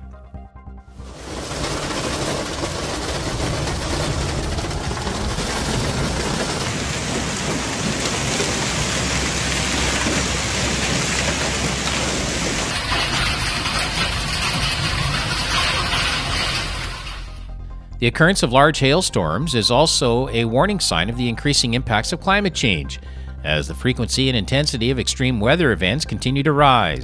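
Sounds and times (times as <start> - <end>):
heavy hail and rain falling: 1.0 - 17.4
low rumble: 1.0 - 27.0.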